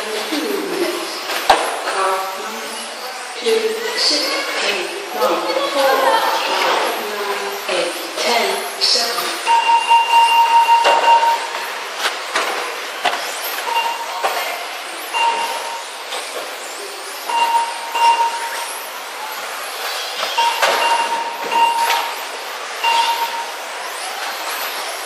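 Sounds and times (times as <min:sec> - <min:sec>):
short electronic beeps: 0:09.4 - 0:11.7, 0:13.6 - 0:14.3, 0:15.1 - 0:15.9, 0:17.3 - 0:18.8, 0:20.3 - 0:22.2, 0:22.8 - 0:23.6.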